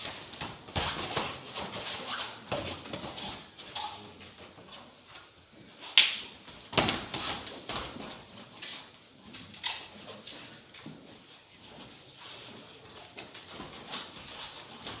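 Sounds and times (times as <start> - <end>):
hands slapping: 5.9 - 7.2.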